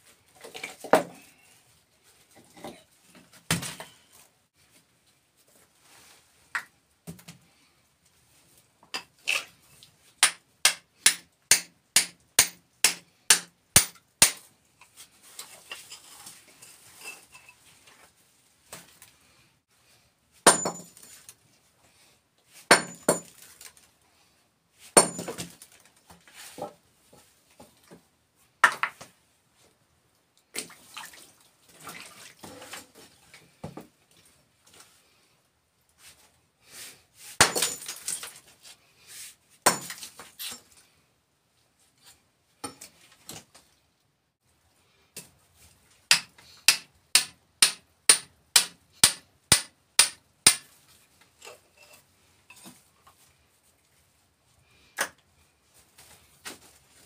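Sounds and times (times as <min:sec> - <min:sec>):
hammer striking steel chisel: 0:10.2 - 0:14.4, 0:46.1 - 0:50.6.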